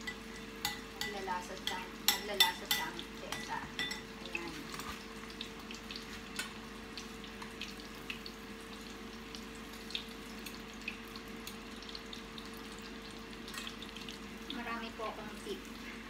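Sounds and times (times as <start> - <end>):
faint steady hum: 0.0 - 16.0
fritters frying in hot oil: 0.0 - 16.0.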